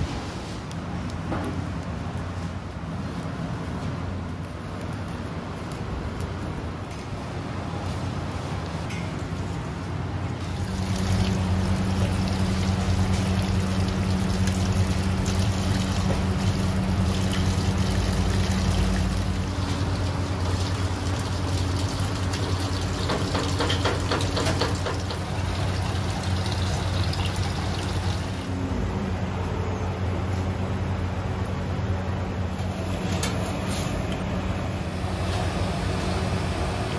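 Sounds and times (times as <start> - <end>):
steady low hum: 0.0 - 22.9, 25.2 - 36.9
tap water splashing into a sink: 10.5 - 28.3.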